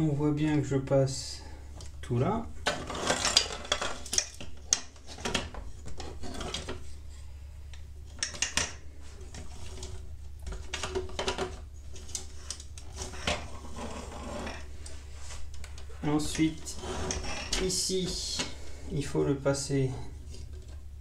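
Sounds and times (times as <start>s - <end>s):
plastic parts clicking and rattling: 2.6s - 6.8s, 8.1s - 14.6s.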